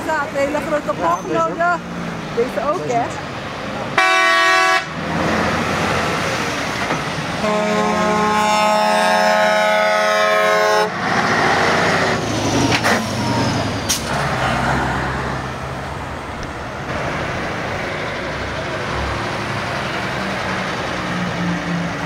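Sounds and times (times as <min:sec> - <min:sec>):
heavy trucks driving past: 0:00.0 - 0:22.0
truck air horn blast: 0:04.0 - 0:05.0, 0:07.4 - 0:11.0.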